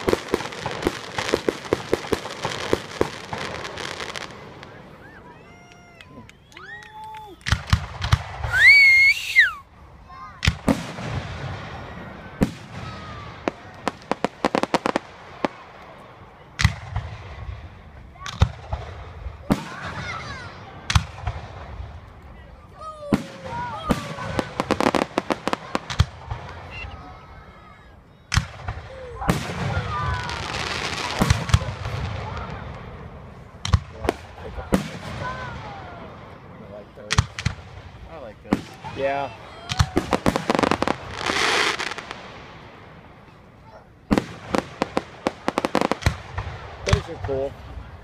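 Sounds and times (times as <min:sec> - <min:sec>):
firework burst crackling: 0:00.0 - 0:05.0, 0:23.0 - 0:27.0, 0:28.3 - 0:36.5, 0:37.1 - 0:43.3, 0:44.1 - 0:48.0
crackling firework pops: 0:05.6 - 0:08.7, 0:10.4 - 0:11.5, 0:16.6 - 0:20.1, 0:20.8 - 0:22.3, 0:28.3 - 0:32.8, 0:33.6 - 0:35.5, 0:37.1 - 0:39.0, 0:39.7 - 0:42.5, 0:44.1 - 0:47.6
firework whistle: 0:08.4 - 0:09.6, 0:26.5 - 0:27.1.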